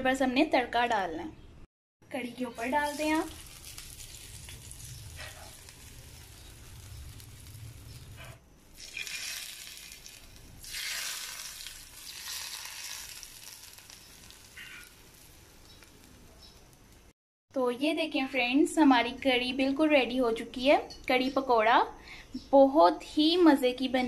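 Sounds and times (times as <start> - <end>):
hot oil sizzling: 2.4 - 17.2.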